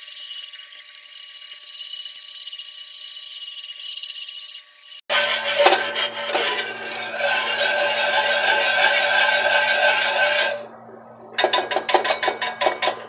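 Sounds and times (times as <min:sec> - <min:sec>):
whisk scraping a skillet: 0:04.7 - 0:10.7, 0:11.4 - 0:13.0.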